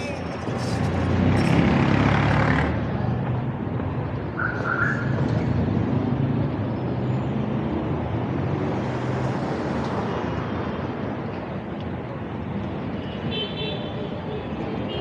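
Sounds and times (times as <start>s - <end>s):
car engines running: 0.0s - 9.1s
car passing: 0.0s - 11.0s.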